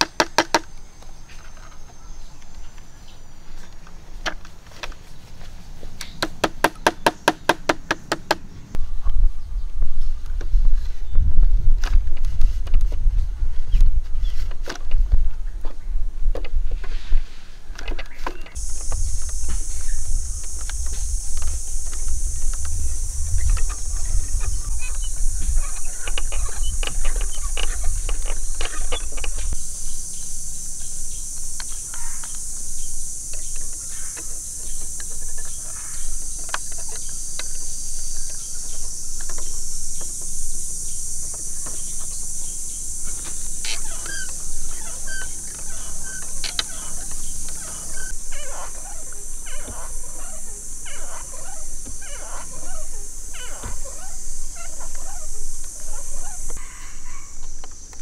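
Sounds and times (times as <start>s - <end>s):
bamboo clicking and knocking: 0.0s - 1.7s, 6.0s - 8.5s
forest insects droning: 0.0s - 58.0s.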